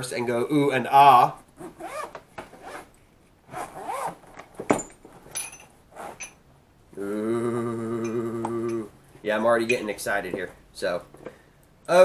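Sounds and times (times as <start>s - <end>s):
zipper being pulled open: 1.6s - 2.9s, 3.5s - 4.4s, 5.9s - 6.4s.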